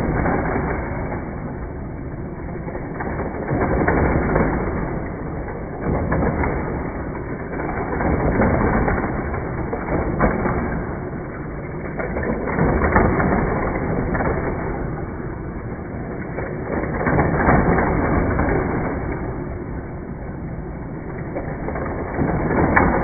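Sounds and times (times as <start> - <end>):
toy cars rattling on plastic track: 21.2 - 23.0.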